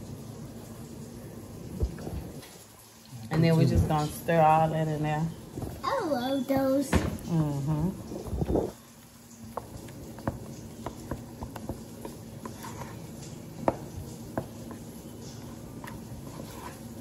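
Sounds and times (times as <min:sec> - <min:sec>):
spoon scraping mashed potatoes: 0:09.6 - 0:17.0.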